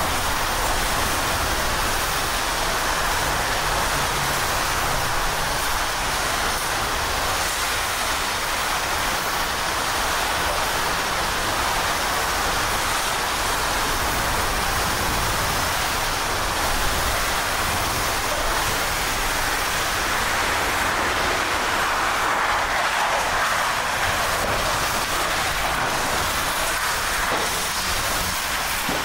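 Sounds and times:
heavy rain: 0.0 - 29.0
hurricane wind: 0.0 - 29.0.

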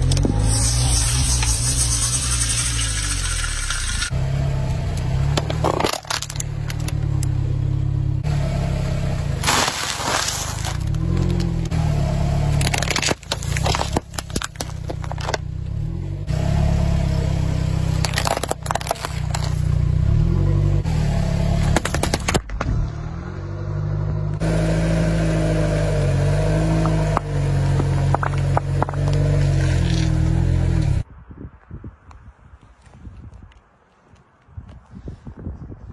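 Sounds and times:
engine and tyre rumble: 0.0 - 35.9
objects crunching under tyre: 5.3 - 7.0, 9.4 - 15.8, 17.8 - 19.8, 21.6 - 22.9, 26.8 - 30.5.

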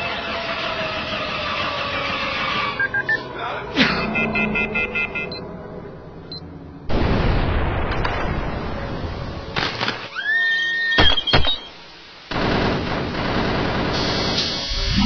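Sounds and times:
sharp cracks: 9.6 - 10.2
crashing burst of noise: 11.0 - 15.0.

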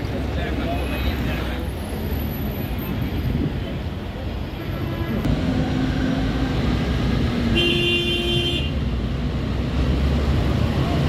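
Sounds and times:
tram rumbling: 0.0 - 11.0
tram horn: 7.5 - 8.8.

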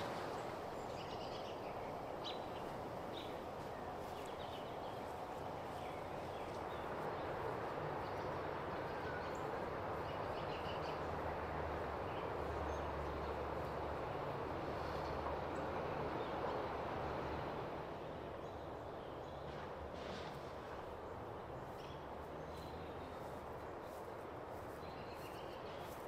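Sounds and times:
steady background hiss: 0.0 - 19.4.

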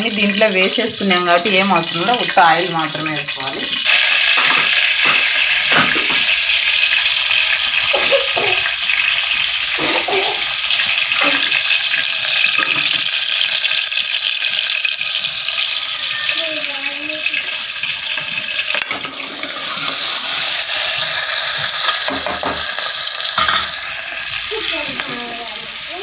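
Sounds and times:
onions sizzling in hot oil: 0.0 - 26.0
pan clatters: 3.5 - 6.4, 21.2 - 23.9.

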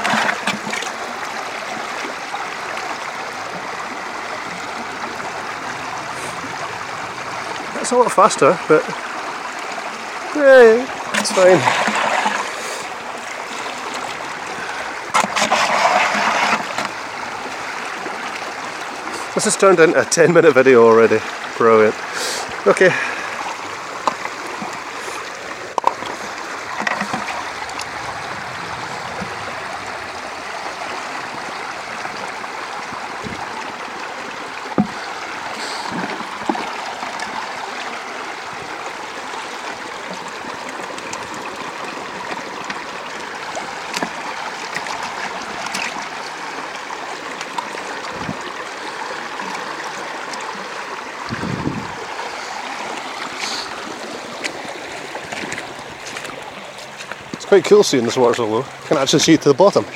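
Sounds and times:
river water over rocks: 0.0 - 59.9.

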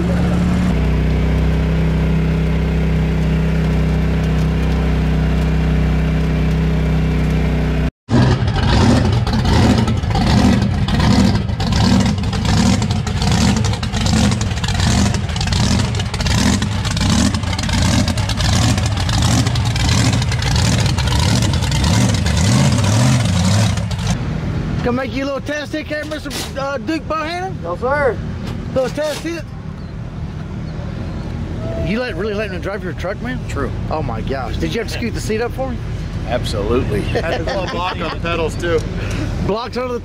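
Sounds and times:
engine running steadily: 0.0 - 40.0
big truck engine idling: 8.4 - 24.2.

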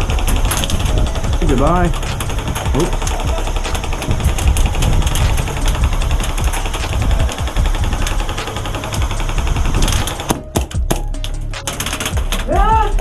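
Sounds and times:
low rumble on microphone: 0.0 - 10.3
airsoft guns firing: 0.0 - 11.0, 11.6 - 12.9.

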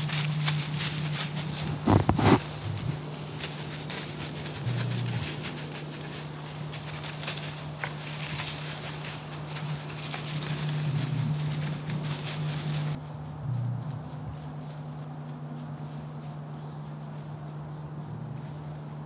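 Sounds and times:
rustling in dry leaves: 0.0 - 19.0
steady low hum: 0.0 - 19.0.

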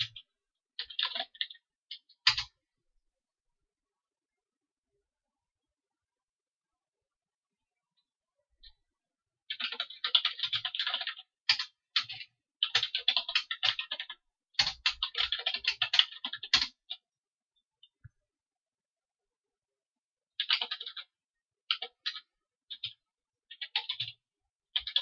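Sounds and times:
computer keyboard typing: 0.0 - 2.6, 9.5 - 17.0, 20.4 - 25.0.

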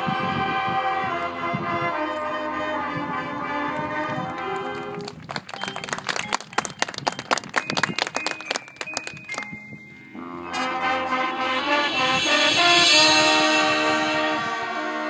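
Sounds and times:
drums and mallet percussion: 5.8 - 10.6
brass section held chord: 10.2 - 15.0.

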